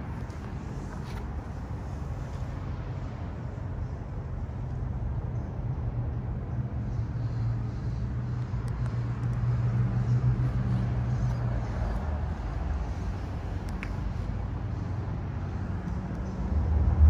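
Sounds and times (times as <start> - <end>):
outdoor background noise: 0.0 - 17.0
vehicle engine hum: 0.0 - 17.0.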